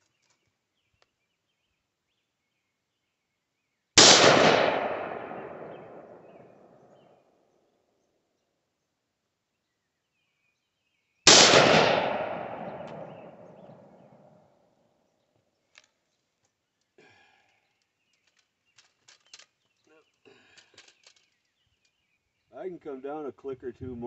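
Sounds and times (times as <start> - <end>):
rifle shot with echo: 4.0 - 6.9, 11.3 - 14.4
gun handling clicks: 12.1 - 13.8, 17.5 - 19.7, 20.5 - 22.0.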